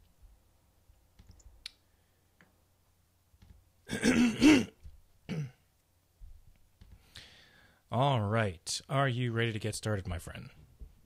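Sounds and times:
man clearing throat: 3.9 - 5.6.

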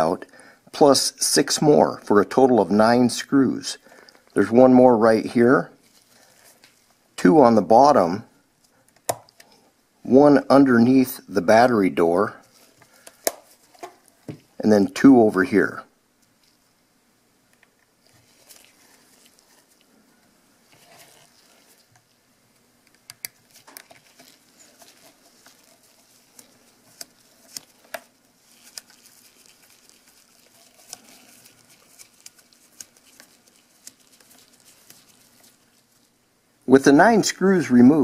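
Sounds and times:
gloved hands handling camera: 12.4 - 14.5, 17.5 - 19.9, 22.8 - 36.1.

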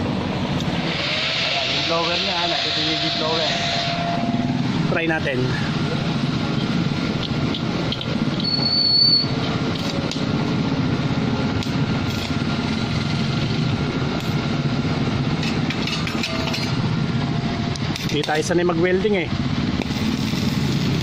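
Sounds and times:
welder cooling blower droning: 0.0 - 8.5, 9.3 - 21.0
high whistle: 8.4 - 9.4.

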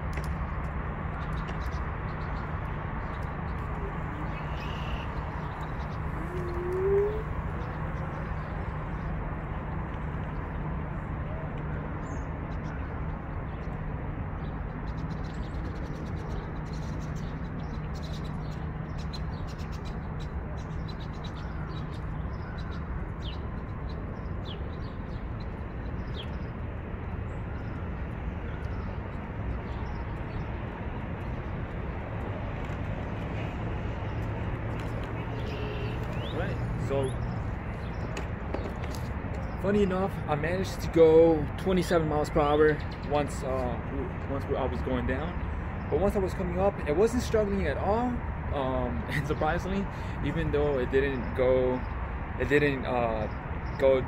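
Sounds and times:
low hum of city ambience: 0.0 - 54.0
rising bird call: 3.8 - 7.8, 35.0 - 36.6
faint bird chirps: 35.0 - 36.6.

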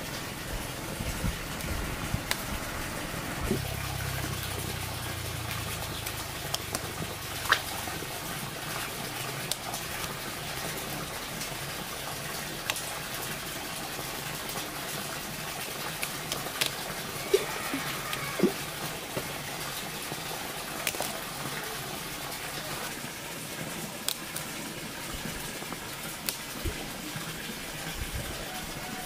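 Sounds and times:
fruit stems snapping: 20.8 - 21.1.

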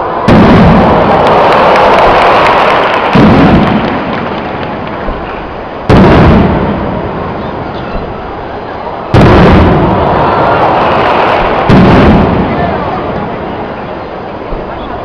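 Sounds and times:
firework shells bursting: 0.0 - 8.4, 9.1 - 14.8
firework crackling: 0.0 - 15.0.

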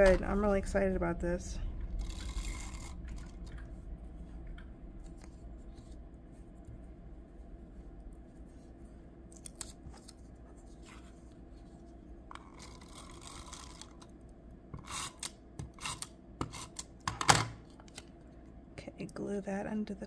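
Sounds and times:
paper rustling: 8.4 - 11.8
tape runner scratching paper: 12.4 - 14.1, 14.8 - 16.9.

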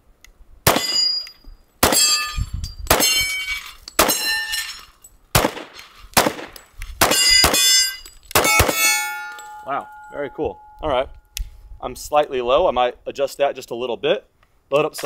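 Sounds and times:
rifle gunshots: 0.7 - 1.0, 1.8 - 2.1, 5.3 - 7.7, 8.4 - 8.9
steel target ringing: 0.7 - 4.8, 7.0 - 11.4.

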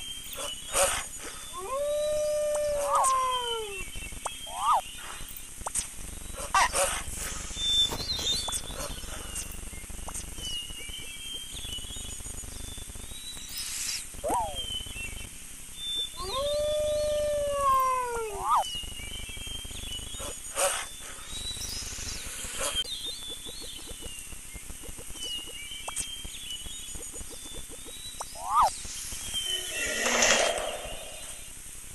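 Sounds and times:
wolf howling: 1.6 - 3.8, 16.2 - 18.6.

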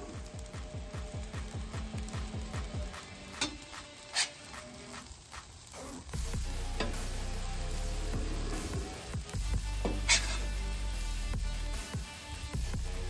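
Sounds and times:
tacos sizzling on griddle: 0.0 - 13.0
metal spatulas scraping steel: 9.8 - 10.5.

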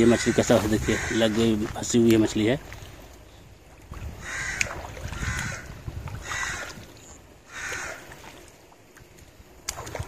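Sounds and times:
crow cawing: 0.0 - 1.3, 4.2 - 6.8, 7.5 - 8.1.

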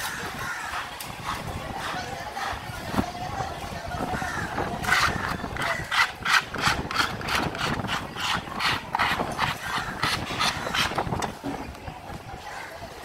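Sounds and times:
knife scraping wooden block: 4.8 - 11.4.

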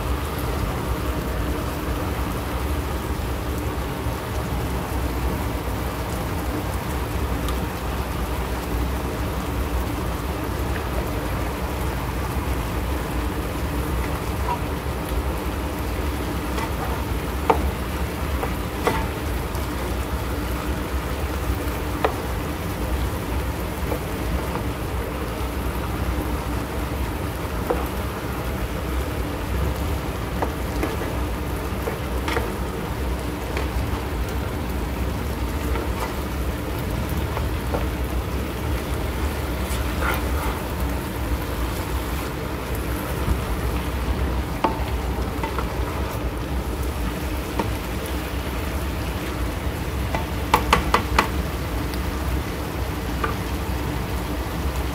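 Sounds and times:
vegetables sizzling in a skillet: 0.0 - 54.9
spatula scraping a pan: 39.5 - 40.7.

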